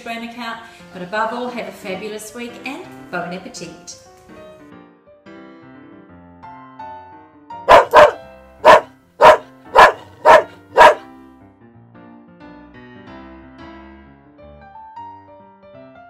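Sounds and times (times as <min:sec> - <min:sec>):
light piano music: 0:00.0 - 0:16.0
dog barking: 0:07.7 - 0:11.0.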